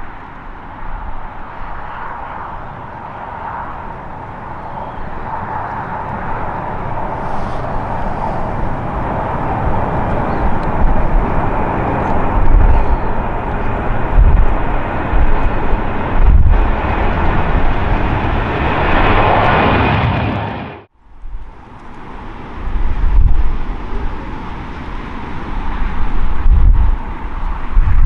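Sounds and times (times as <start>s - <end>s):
jet engines at takeoff thrust: 0.0s - 28.0s
wind buffeting microphone: 0.0s - 28.0s.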